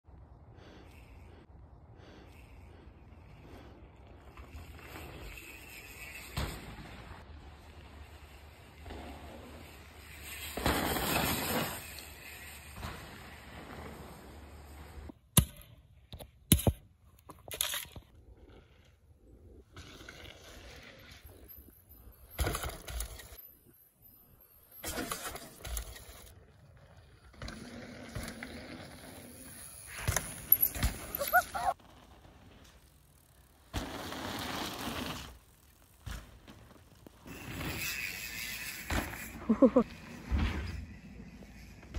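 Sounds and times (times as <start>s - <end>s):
bike tyres rushing over dirt: 2.0s - 15.1s, 24.8s - 41.9s
metal shovel scraping dirt: 37.2s - 41.9s.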